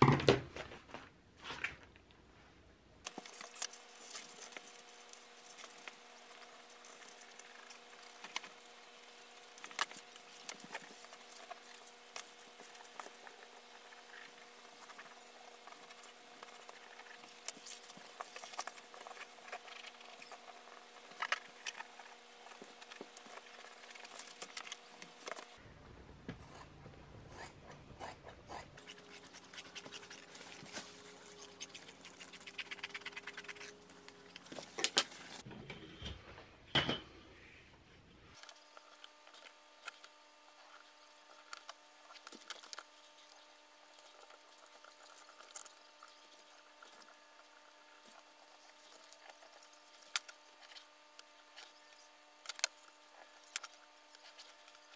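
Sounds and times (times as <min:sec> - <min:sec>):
faint steady hum: 0:00.0 - 0:54.9
shears cutting leather: 0:03.0 - 0:25.6, 0:27.4 - 0:35.4.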